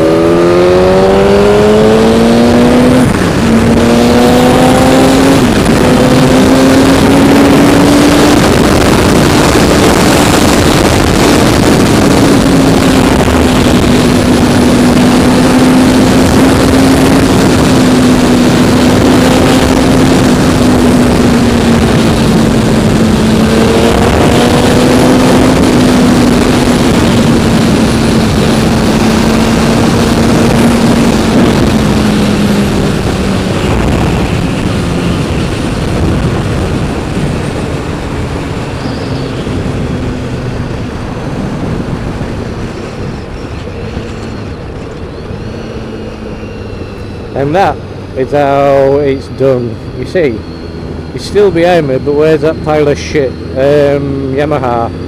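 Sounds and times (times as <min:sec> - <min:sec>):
motorcycle engine running: 0:00.0 - 0:55.0
wind rushing: 0:00.0 - 0:55.0.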